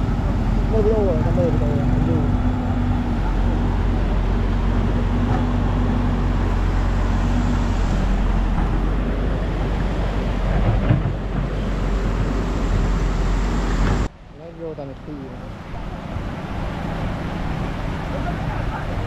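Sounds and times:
engine running close by: 0.0s - 14.1s
road traffic noise: 0.0s - 19.0s.

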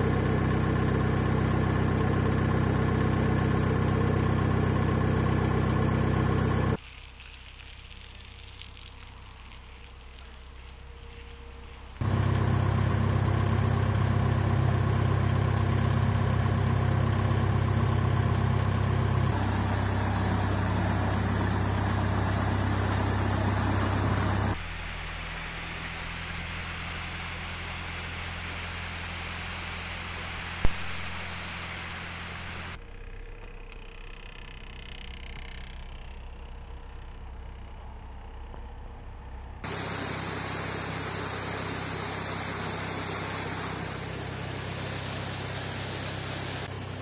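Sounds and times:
boat engine running: 0.0s - 6.8s, 9.8s - 47.0s
rushing water: 19.3s - 32.7s, 39.6s - 47.0s.

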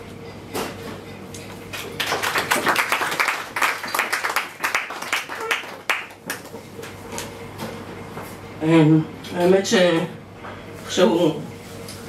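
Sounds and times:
audience applauding: 1.9s - 7.0s.

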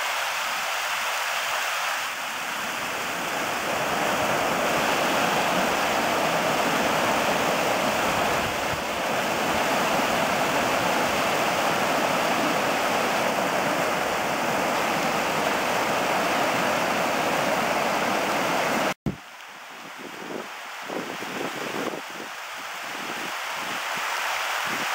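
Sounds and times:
water rushing over rocks: 0.0s - 19.3s.

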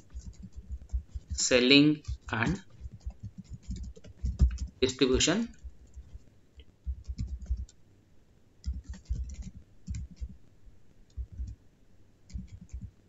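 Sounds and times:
keyboard typing clicks: 0.1s - 1.4s, 2.0s - 7.8s, 8.6s - 10.4s, 12.3s - 12.9s.

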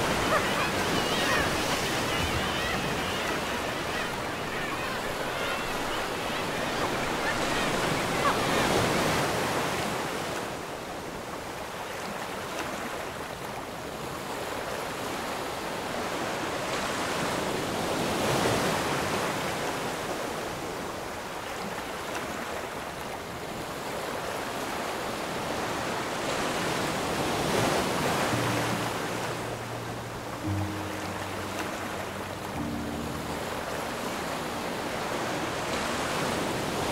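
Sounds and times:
waves breaking and washing in: 0.0s - 36.9s
music: 28.3s - 36.9s.

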